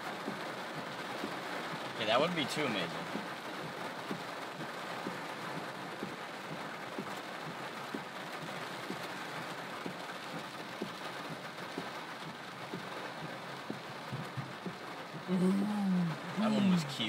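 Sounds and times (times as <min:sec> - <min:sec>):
rain hiss on car: 0:00.0 - 0:17.0
raindrops tapping roof: 0:00.0 - 0:17.0.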